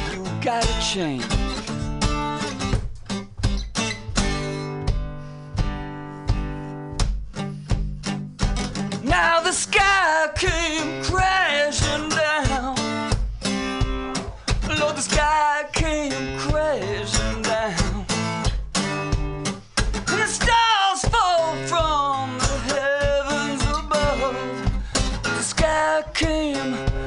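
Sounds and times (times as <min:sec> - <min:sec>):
person singing: 0:00.0 - 0:01.5, 0:14.7 - 0:18.2, 0:20.1 - 0:27.0
acoustic guitar strumming: 0:00.0 - 0:27.0.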